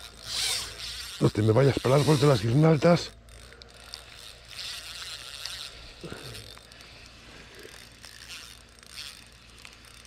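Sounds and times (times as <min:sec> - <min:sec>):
fishing reel ratchet clicking: 0:00.0 - 0:10.0.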